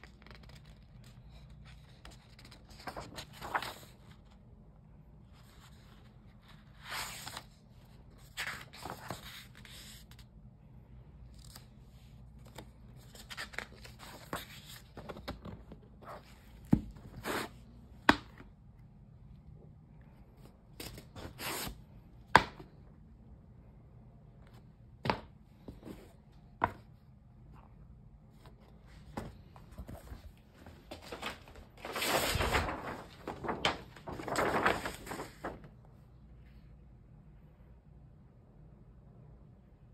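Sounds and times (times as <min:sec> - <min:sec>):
book pages turning: 0:00.0 - 0:04.5, 0:05.4 - 0:10.3, 0:11.2 - 0:18.6, 0:20.4 - 0:21.8, 0:28.3 - 0:35.8.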